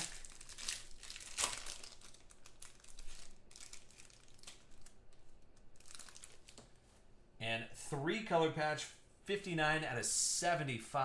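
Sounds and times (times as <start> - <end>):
wrapper crinkling: 0.0 - 6.9.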